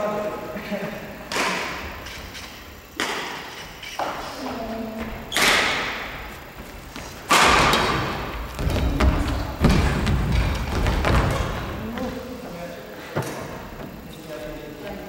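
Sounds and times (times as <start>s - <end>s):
racket hitting shuttlecock: 1.3s - 2.0s, 3.0s - 4.2s, 5.3s - 6.0s, 7.3s - 8.2s
footsteps on wooden court floor: 3.5s - 14.6s.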